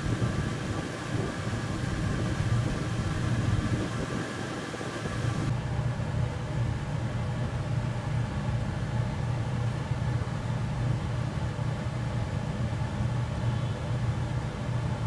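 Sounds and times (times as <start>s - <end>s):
fluctuating rumble: 0.0s - 5.5s
low machine hum: 0.0s - 15.0s.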